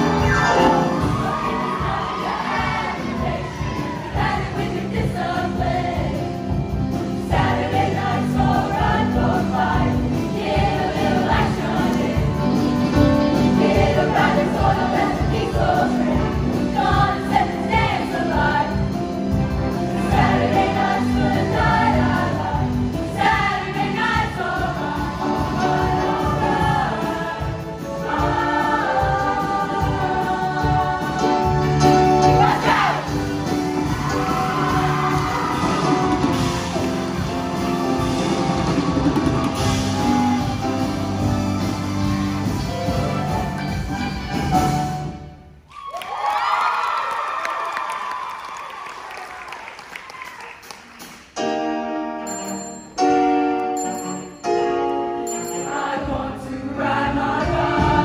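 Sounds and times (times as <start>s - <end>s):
choir singing: 0.0s - 19.0s, 19.9s - 41.7s, 55.6s - 58.0s
instrumental accompaniment with bass: 0.0s - 45.4s.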